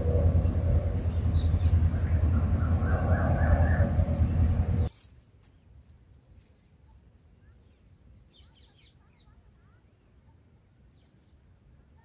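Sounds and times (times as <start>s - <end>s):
faint low rumble: 0.0s - 5.0s
nestling birds chirping: 0.0s - 6.8s.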